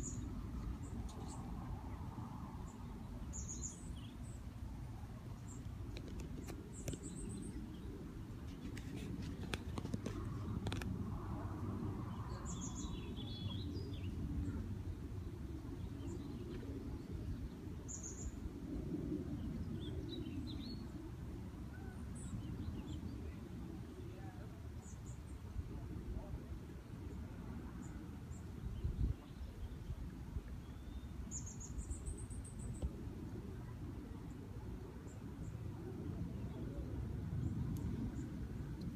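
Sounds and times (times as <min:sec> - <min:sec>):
small birds chirping: 0:00.0 - 0:01.6, 0:02.6 - 0:04.5, 0:05.3 - 0:10.9, 0:12.1 - 0:18.4, 0:30.6 - 0:33.0
steady low rumble: 0:00.0 - 0:38.9.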